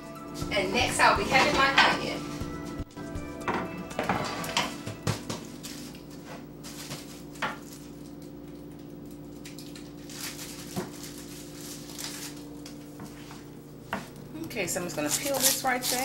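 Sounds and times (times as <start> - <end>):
steady low hum: 0.0 - 16.0
plastic bag rustling: 4.2 - 16.0.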